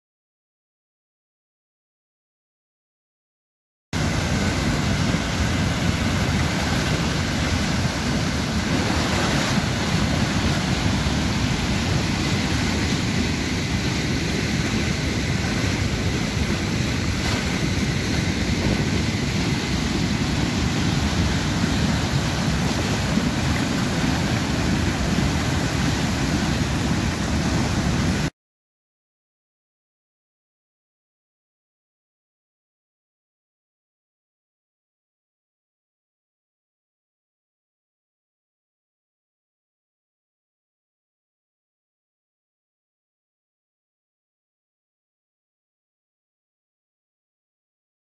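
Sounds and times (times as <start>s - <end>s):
stream rushing over rapids: 4.0s - 28.3s.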